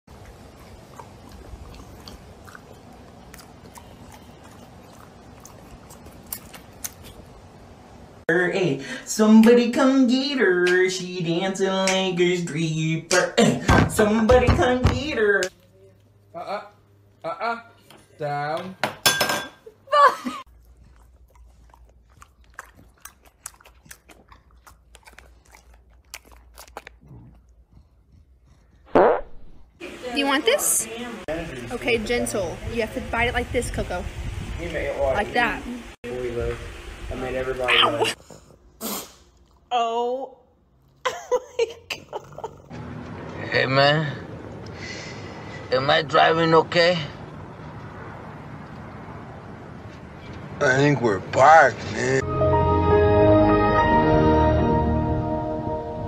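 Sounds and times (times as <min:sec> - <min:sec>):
dog crunching treats: 0:00.4 - 0:07.3, 0:20.7 - 0:27.9.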